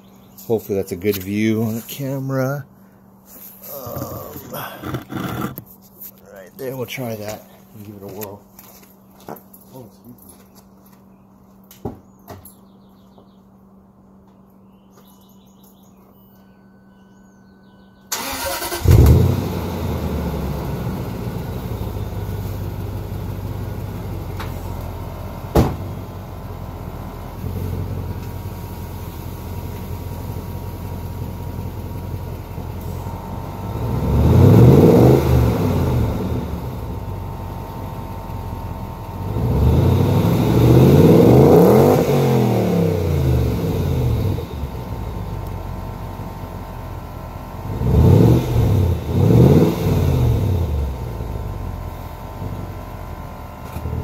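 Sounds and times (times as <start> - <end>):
car engine starting and revving: 18.1 - 46.7, 47.5 - 53.0.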